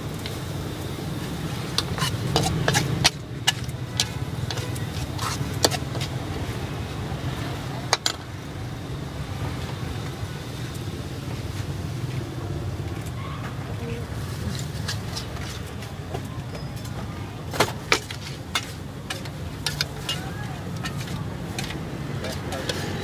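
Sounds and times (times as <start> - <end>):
spatula scraping a wok: 1.1 - 6.6, 13.9 - 16.0, 16.9 - 23.0
metal clanks on pan: 1.8 - 6.0, 16.6 - 23.0.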